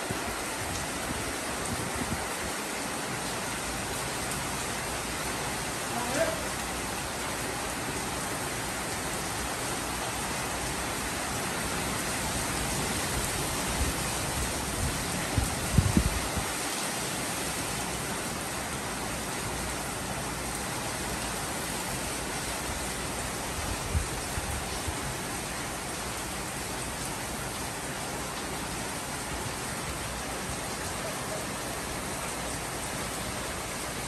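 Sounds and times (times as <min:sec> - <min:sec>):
heavy rain pouring: 0:00.0 - 0:34.0.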